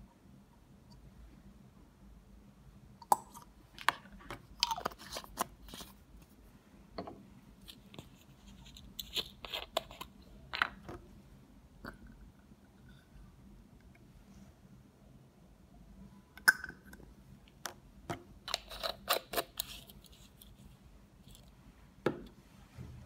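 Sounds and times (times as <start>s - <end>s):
bottles and caps clicking and knocking: 16.4s - 17.0s.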